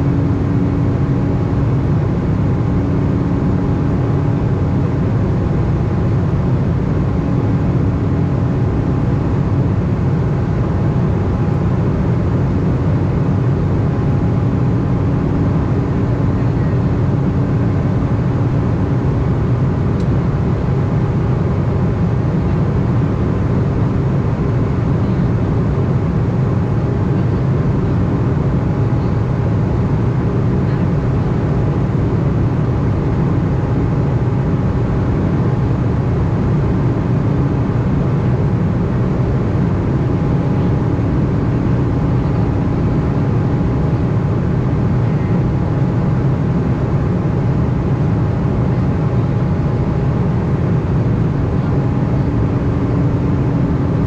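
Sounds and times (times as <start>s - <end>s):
airliner cabin drone: 0.0s - 54.0s
faint steady whine: 0.0s - 54.0s.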